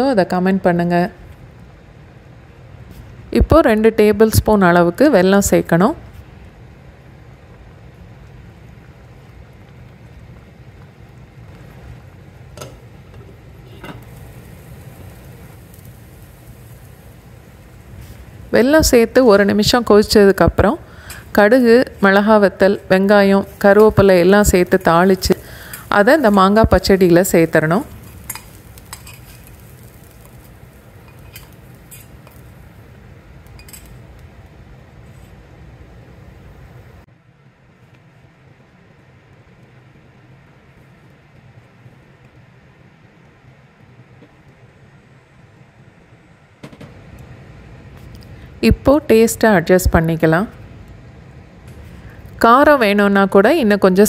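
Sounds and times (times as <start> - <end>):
steel spoon clinking on pan: 28.2 - 29.5.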